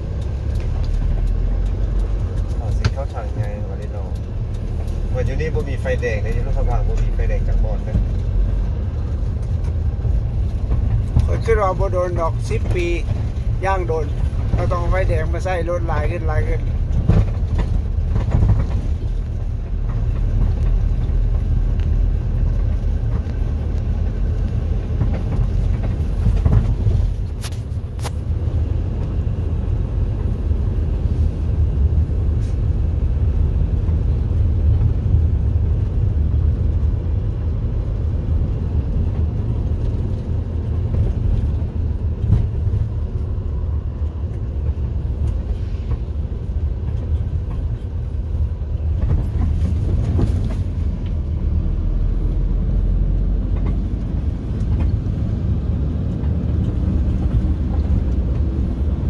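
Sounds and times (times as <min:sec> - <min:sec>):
vehicle engine and tyres rumbling: 0:00.0 - 0:59.0.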